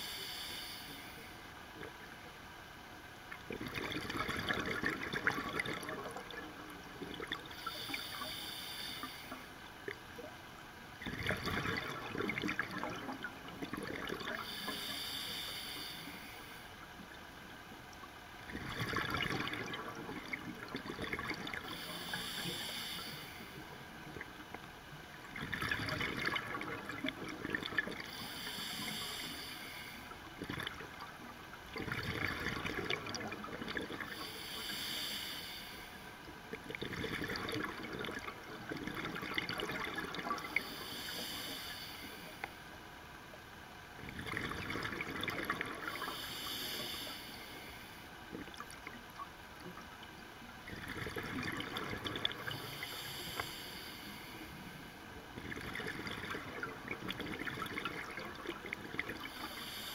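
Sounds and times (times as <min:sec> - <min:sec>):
regulator inhalation hiss: 0:00.0 - 0:01.4, 0:07.6 - 0:09.5, 0:14.4 - 0:16.7, 0:21.7 - 0:23.6, 0:28.1 - 0:30.2, 0:34.1 - 0:36.2, 0:40.4 - 0:42.5, 0:45.9 - 0:48.2, 0:52.4 - 0:54.8, 0:59.3 - 0:59.9
exhaled bubbles underwater: 0:03.4 - 0:07.9, 0:11.0 - 0:14.8, 0:18.4 - 0:22.7, 0:23.5 - 0:29.2, 0:30.2 - 0:34.8, 0:36.4 - 0:41.2, 0:44.0 - 0:46.2, 0:48.3 - 0:53.2, 0:55.2 - 0:59.8.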